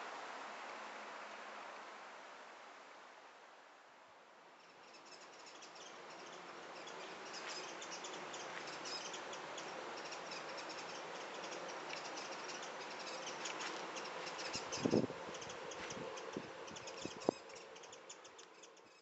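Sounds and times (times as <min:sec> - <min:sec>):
outdoor background hiss: 0:00.0 - 0:19.0
insects chirping: 0:04.6 - 0:19.0.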